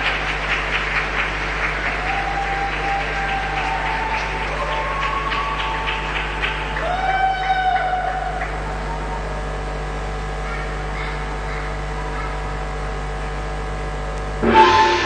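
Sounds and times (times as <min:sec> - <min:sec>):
crowd applause: 0:00.0 - 0:12.6, 0:14.4 - 0:15.0
steady electrical hum: 0:00.0 - 0:15.0
spectator's high call: 0:14.4 - 0:15.0.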